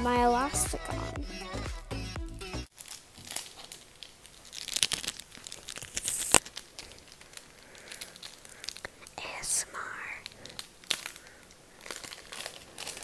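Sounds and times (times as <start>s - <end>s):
crinkling and crackling: 2.7s - 13.0s.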